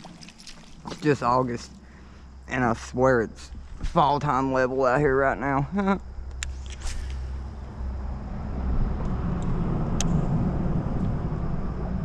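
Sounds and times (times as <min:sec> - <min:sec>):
traffic rumbling across bridge: 0:07.1 - 0:12.0.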